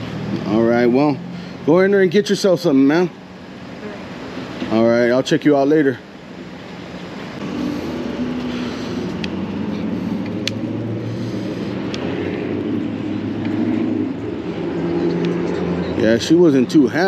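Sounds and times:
tyres and wind rumble: 0:00.0 - 0:17.0
low motor hum: 0:06.1 - 0:16.7.

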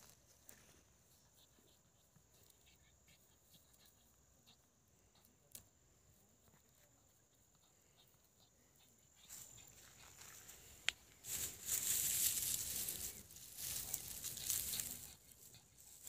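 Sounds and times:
high-pitched insect trill: 0:06.1 - 0:16.0.

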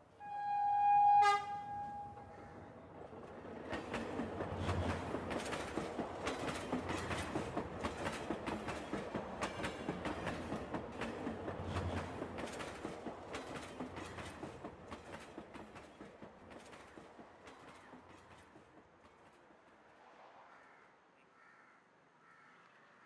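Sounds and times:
passenger train rolling past: 0:00.0 - 0:20.3
train wheels clacking over rail joints: 0:03.0 - 0:19.5.

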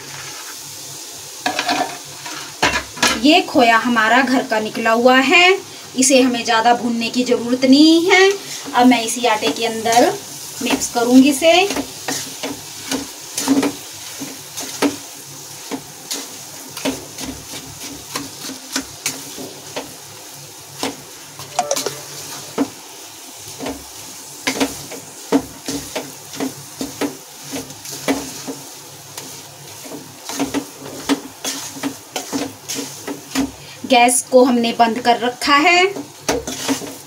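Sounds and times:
faint sizzle: 0:00.0 - 0:37.0
wooden spatula scraping metal pan: 0:36.4 - 0:37.0.

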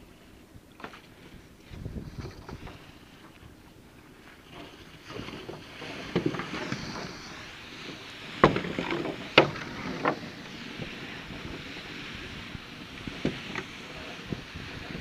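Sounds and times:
floats and rope knocking: 0:00.8 - 0:03.4, 0:04.4 - 0:15.0
rush of water and slipping mesh: 0:04.2 - 0:15.0.

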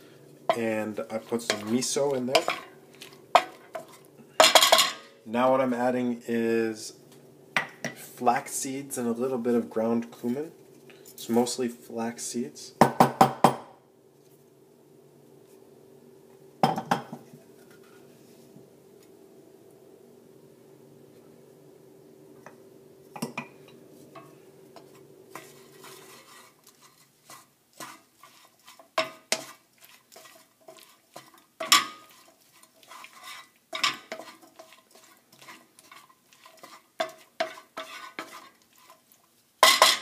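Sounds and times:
wooden spatula scraping frying pan: 0:00.0 - 0:04.9, 0:24.0 - 0:40.0.

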